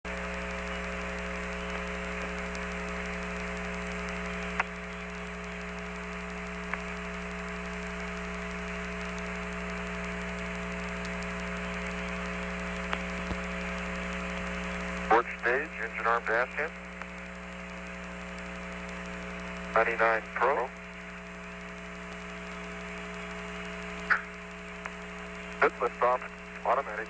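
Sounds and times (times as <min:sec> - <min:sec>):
radio channel hiss and hum: 0:00.1 - 0:27.0
short radio clicks: 0:00.1 - 0:27.0.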